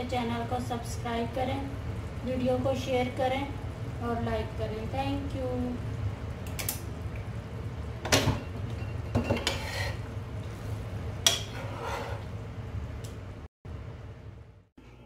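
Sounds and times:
metal spoon scraping a pot: 9.3 - 10.1, 11.3 - 12.3.

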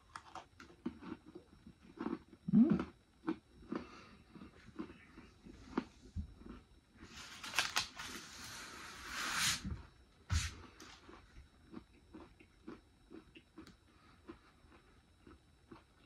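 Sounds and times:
crunching hard snack: 0.0 - 8.2.

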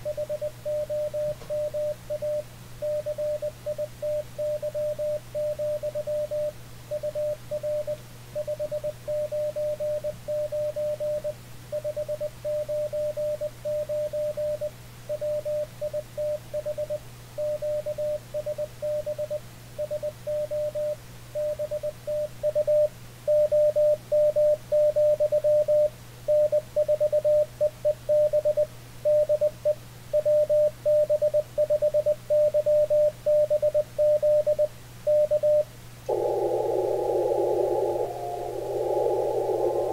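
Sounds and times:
low steady hum: 32.3 - 39.9.

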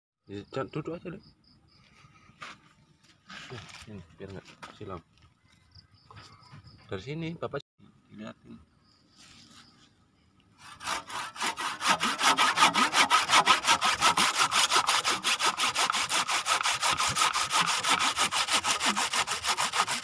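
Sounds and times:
hand saw cutting wood: 10.6 - 20.0.

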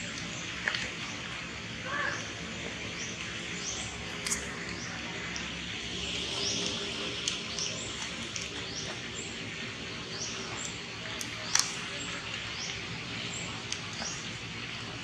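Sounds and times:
steady outdoor hiss: 0.0 - 15.0
faint clicks: 10.6 - 12.8.

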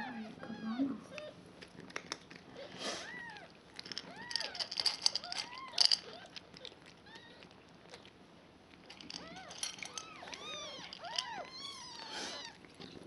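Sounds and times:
cat crunching dry kibble: 1.5 - 2.6, 3.4 - 13.0
kittens mewing: 9.0 - 13.0.

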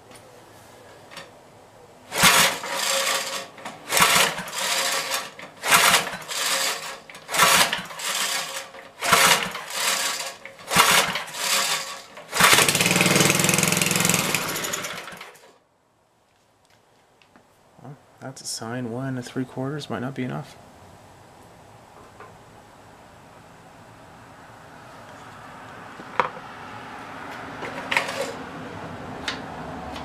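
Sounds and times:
engine pull-start rope pulls: 2.1 - 15.5, 27.6 - 28.4
small engine running: 2.1 - 15.5.

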